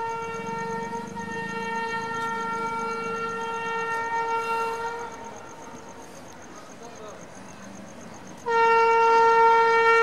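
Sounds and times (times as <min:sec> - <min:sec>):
train horn blast: 0:00.0 - 0:05.7, 0:08.4 - 0:10.0
low train rumble: 0:00.0 - 0:10.0.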